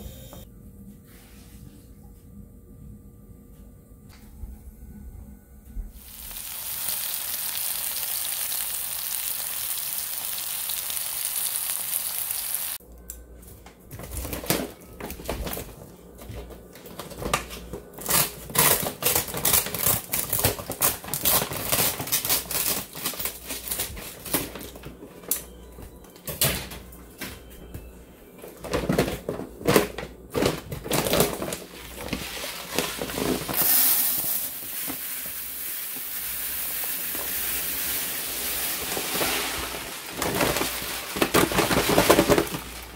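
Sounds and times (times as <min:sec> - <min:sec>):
steady hiss: 0:06.0 - 0:12.8.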